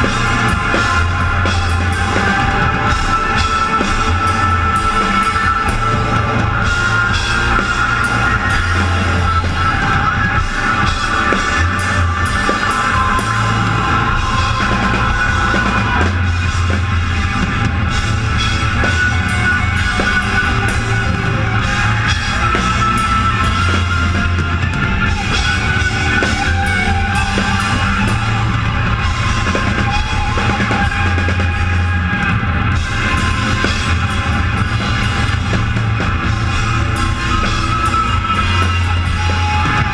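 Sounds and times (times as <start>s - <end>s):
drum kit with cymbals: 0.0s - 39.9s
rock band playing live: 0.0s - 39.9s.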